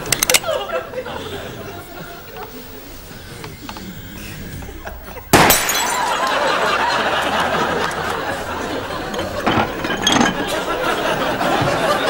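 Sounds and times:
studio audience laughter: 0:00.0 - 0:12.0
pistol shot: 0:05.3 - 0:05.8
light bulb shattering: 0:05.3 - 0:06.3.

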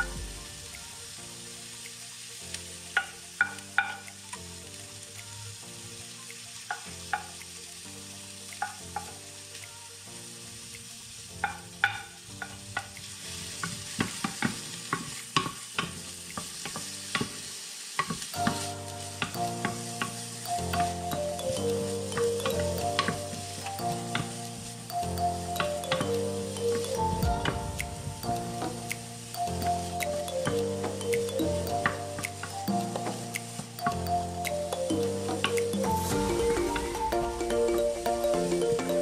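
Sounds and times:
food sizzling in hot oil: 0:00.0 - 0:39.0
wooden spoon tapping pot: 0:03.0 - 0:04.2, 0:11.4 - 0:12.9, 0:18.0 - 0:36.1.

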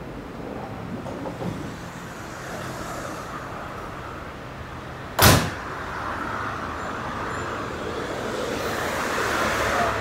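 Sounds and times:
train doors shutting thud: 0:05.2 - 0:05.6.

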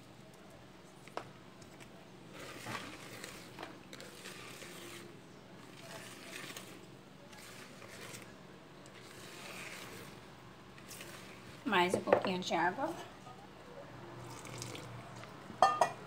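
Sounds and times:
whisk swishing in batter: 0:01.6 - 0:11.9.

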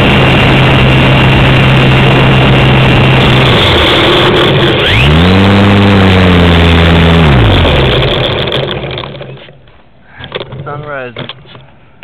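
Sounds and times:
wind rushing over microphone: 0:00.0 - 0:06.0
electric motor and propeller humming: 0:00.0 - 0:11.6.

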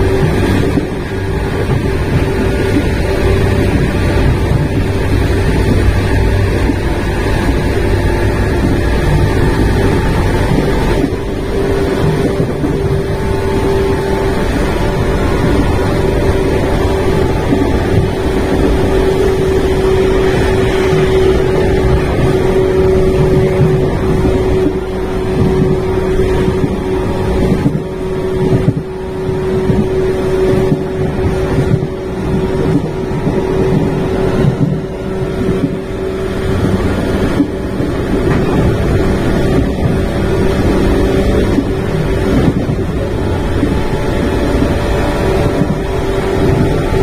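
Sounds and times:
rail joint clacks: 0:00.0 - 0:47.0
rushing air: 0:00.0 - 0:47.0
train motor whine: 0:00.0 - 0:47.0
train rumble: 0:00.0 - 0:47.0.

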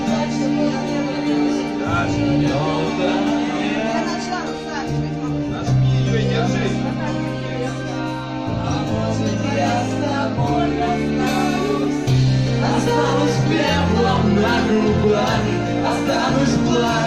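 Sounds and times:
karaoke backing track: 0:00.0 - 0:17.0
person singing: 0:07.2 - 0:17.0.

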